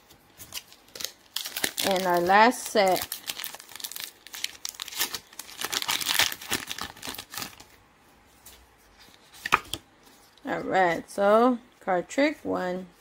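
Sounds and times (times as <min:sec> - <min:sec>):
foil wrapper crinkling and tearing: 0:00.4 - 0:07.7.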